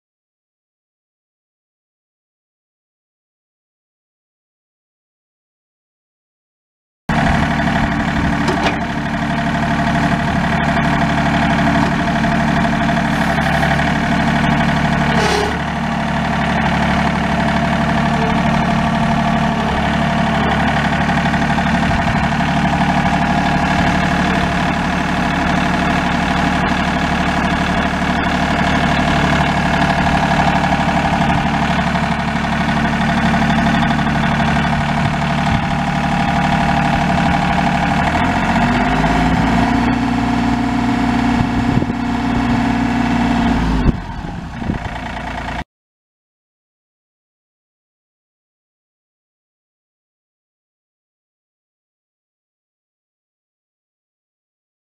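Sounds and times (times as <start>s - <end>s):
tractor diesel engine running: 7.1s - 45.6s.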